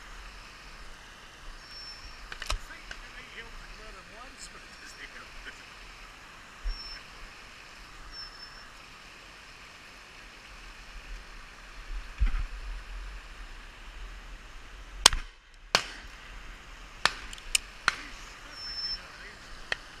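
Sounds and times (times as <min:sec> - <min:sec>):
outdoor background: 0:00.0 - 0:20.0
shotgun shots: 0:15.0 - 0:16.1, 0:17.0 - 0:18.2.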